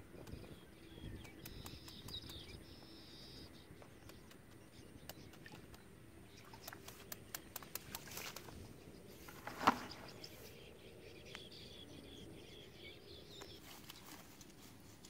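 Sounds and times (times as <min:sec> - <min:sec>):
sharp taps and clicks: 0:01.2 - 0:02.6, 0:03.8 - 0:08.5.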